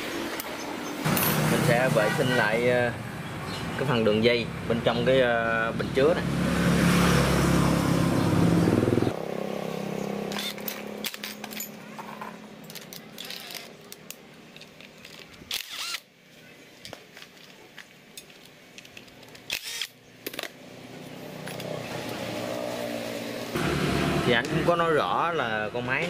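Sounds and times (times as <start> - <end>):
clicks of tools and parts: 10.3 - 16.0, 16.8 - 20.6, 21.4 - 21.8
cordless drill whirring: 15.5 - 16.1, 19.5 - 20.0.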